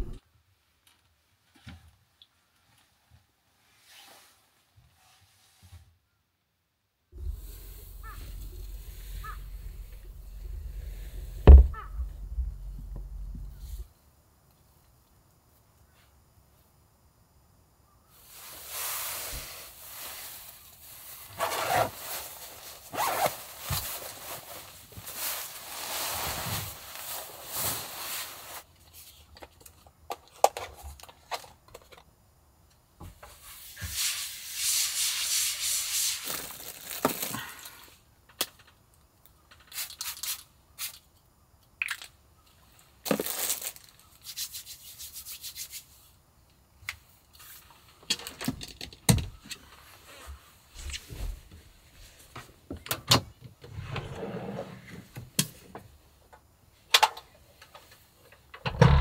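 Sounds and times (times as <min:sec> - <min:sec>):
nylon jacket rustling: 0:21.2 - 0:28.6
drawer sliding open: 0:53.7 - 0:55.2.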